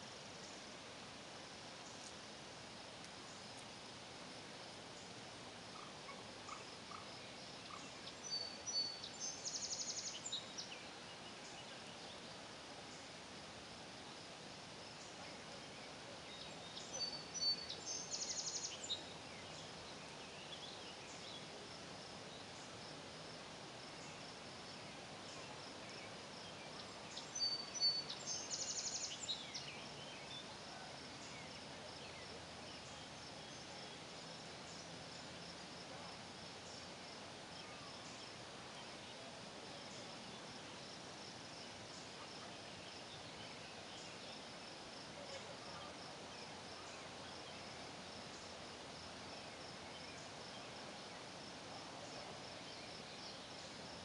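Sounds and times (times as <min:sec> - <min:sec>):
high-pitched insect chorus: 0:00.0 - 0:54.0
songbird singing with trill: 0:05.8 - 0:12.3, 0:15.0 - 0:21.6, 0:24.0 - 0:35.4, 0:37.6 - 0:40.9, 0:41.9 - 0:44.5, 0:52.0 - 0:53.8.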